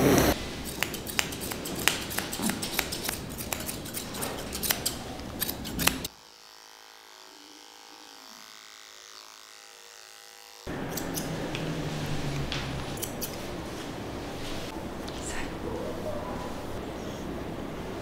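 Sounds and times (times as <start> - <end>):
electric clipper humming: 0.0 - 13.4
scissors snipping fur: 0.6 - 6.1, 10.8 - 11.6, 12.4 - 13.4.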